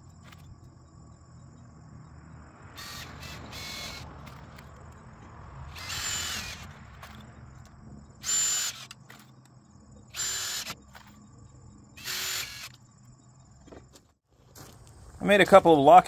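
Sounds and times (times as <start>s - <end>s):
cordless drill whining: 2.8s - 4.1s, 5.7s - 7.2s, 8.2s - 9.0s, 10.1s - 11.1s, 12.0s - 12.8s.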